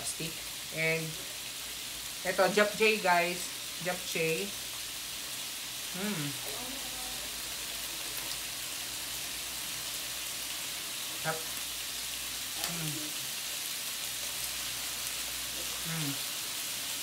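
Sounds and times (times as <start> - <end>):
meat sizzling on a grill plate: 0.0 - 17.0
person humming: 5.9 - 7.4, 12.6 - 13.2, 15.7 - 16.4.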